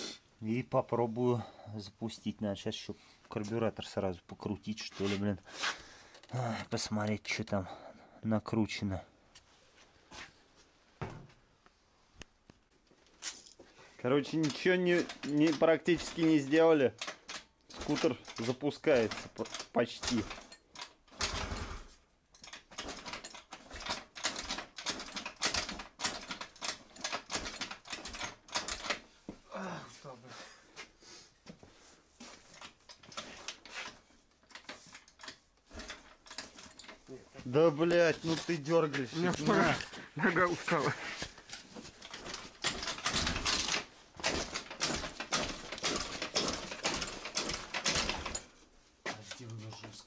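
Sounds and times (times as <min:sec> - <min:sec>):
scooter engine being kick-started: 0:42.0 - 0:48.4.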